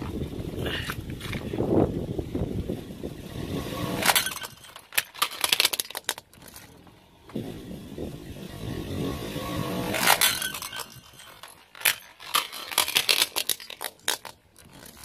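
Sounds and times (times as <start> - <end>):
low car rumble: 0.0 - 4.8, 6.1 - 11.8
plastic toy cracking under tyre: 4.0 - 7.0, 9.9 - 15.0.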